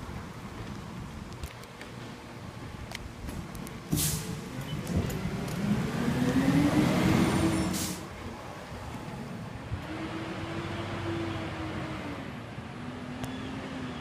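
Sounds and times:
garbage truck diesel engine pulling away: 3.9s - 14.0s.

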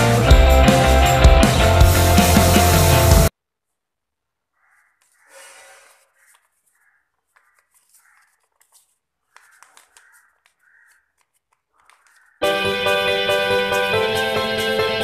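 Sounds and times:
paper rustling while folded: 5.1s - 12.4s
light crackles and clicks: 7.1s - 12.4s.

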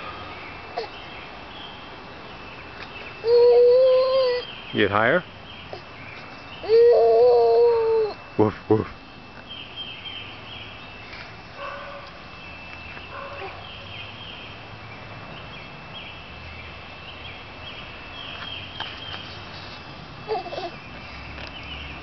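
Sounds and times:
small birds chirping: 0.0s - 8.4s, 9.0s - 22.0s
faint low bird calls: 0.0s - 14.5s.

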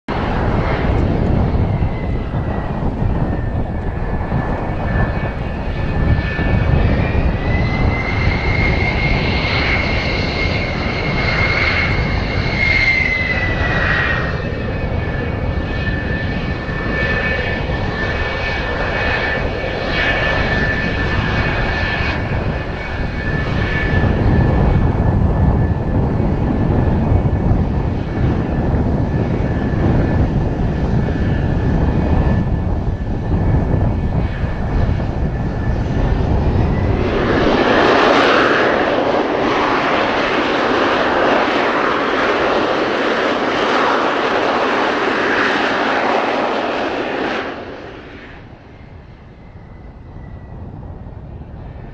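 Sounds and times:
wind rumbling on microphone: 0.0s - 51.9s
jet engines whining: 0.1s - 51.9s.

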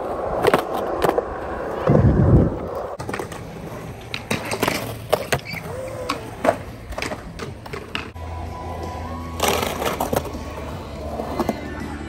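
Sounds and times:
skateboards rolling on concrete: 0.0s - 12.0s
skateboard clicks and clacks: 2.7s - 8.2s.

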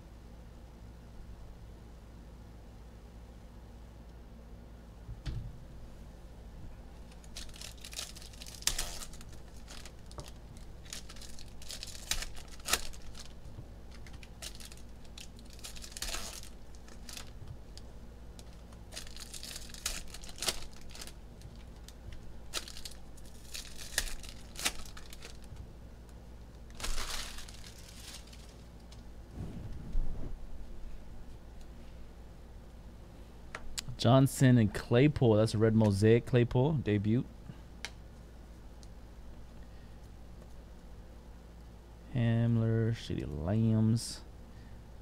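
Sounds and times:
foil wrappers ripped and crumpled: 7.0s - 17.8s, 18.4s - 25.6s, 26.7s - 28.7s.

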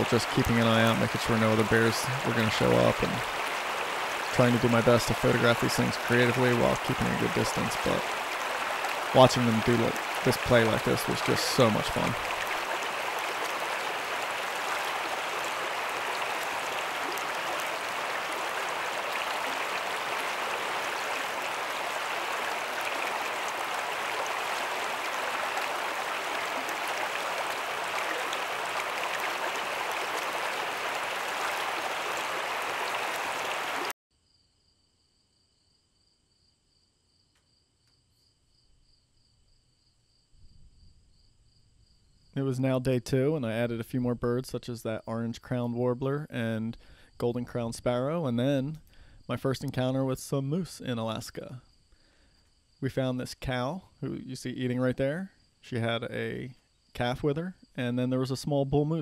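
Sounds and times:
river rushing over rocks: 0.0s - 33.9s.

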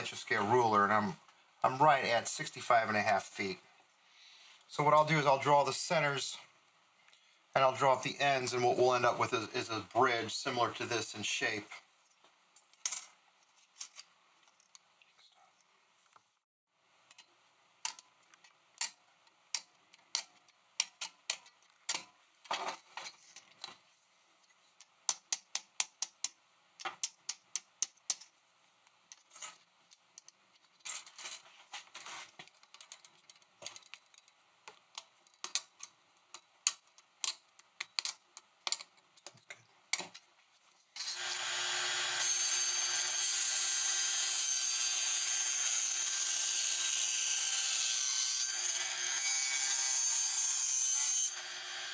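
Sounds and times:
table saw running: 41.0s - 51.9s.

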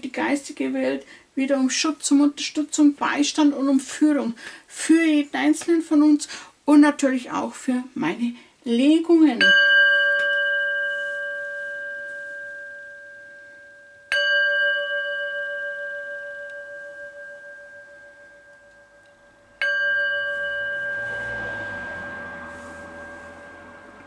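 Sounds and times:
singing bowl ringing: 9.4s - 24.0s.

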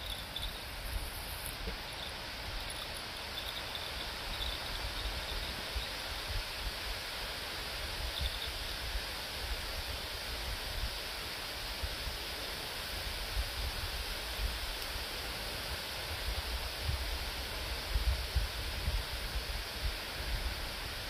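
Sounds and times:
insect chirping: 0.0s - 9.9s
rustling leaves: 0.0s - 21.0s
wind rumbling on microphone: 16.1s - 21.0s.

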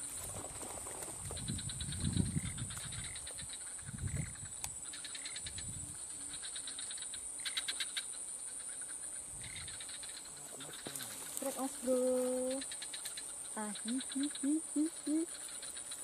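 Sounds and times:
insects droning: 0.0s - 16.0s
rapid pulsing insect calls: 0.0s - 16.0s.

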